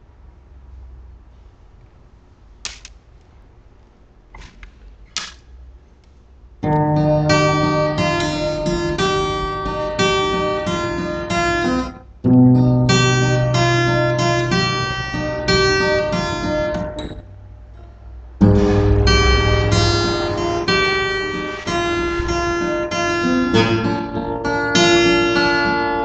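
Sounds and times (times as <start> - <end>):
acoustic guitar chords: 6.6 - 17.2, 17.8 - 26.0.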